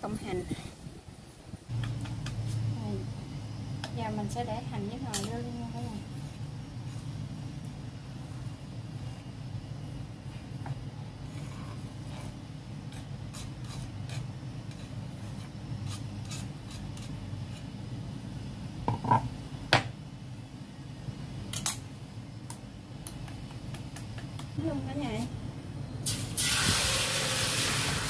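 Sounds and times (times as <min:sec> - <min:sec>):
steady low hum: 0:00.0 - 0:26.4
scraping on wooden cutting board: 0:11.3 - 0:17.7.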